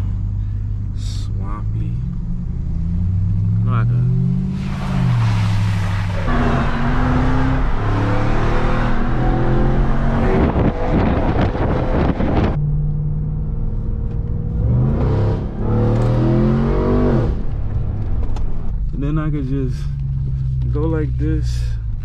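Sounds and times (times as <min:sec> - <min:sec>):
engine revving: 0:01.0 - 0:12.6, 0:14.5 - 0:17.6
loud rushing noise: 0:04.5 - 0:08.9.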